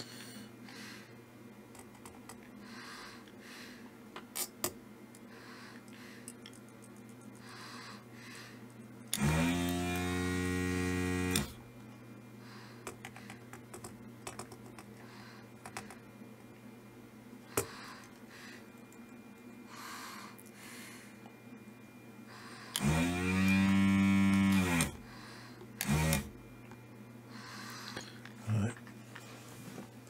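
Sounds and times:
desoldering vacuum pump running: 7.4 - 16.0, 22.3 - 30.0.

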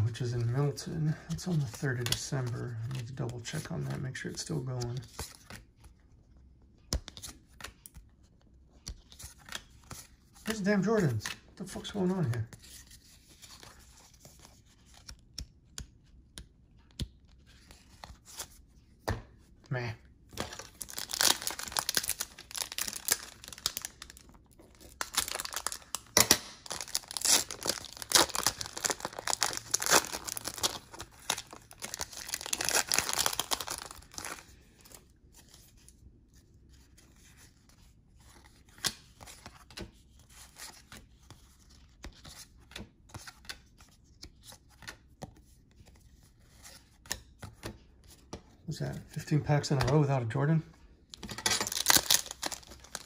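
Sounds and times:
cards being flipped through: 6.8 - 8.1, 8.8 - 19.4, 20.3 - 35.9
wrappers torn and crinkled: 20.5 - 34.4, 51.3 - 53.0.

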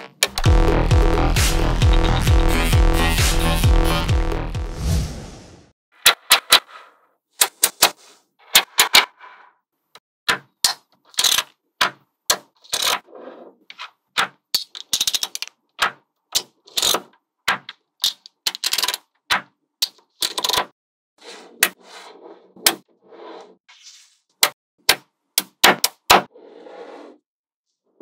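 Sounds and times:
magnetic balls clicking together: 14.6 - 15.6.

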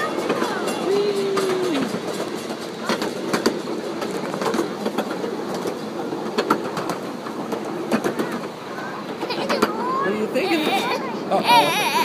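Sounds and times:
train cars rolling: 0.0 - 12.0
clicks and knocks from cars: 1.5 - 8.6.

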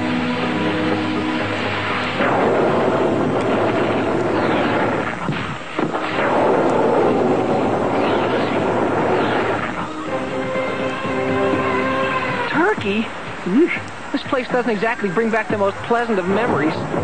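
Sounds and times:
cartoon portal rushing blast: 1.6 - 10.2.

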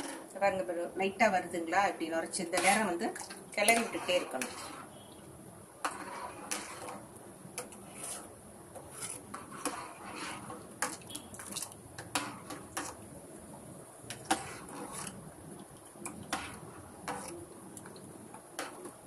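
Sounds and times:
spoon stirring in pot: 2.3 - 5.2, 5.8 - 13.2, 14.0 - 19.0.

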